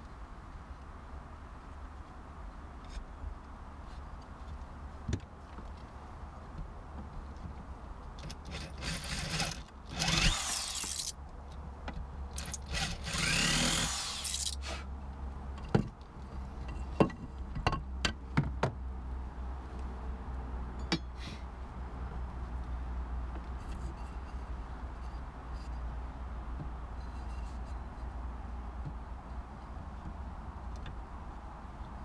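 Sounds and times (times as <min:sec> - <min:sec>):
electric drill boring into wood: 0:08.5 - 0:11.1, 0:12.4 - 0:14.6.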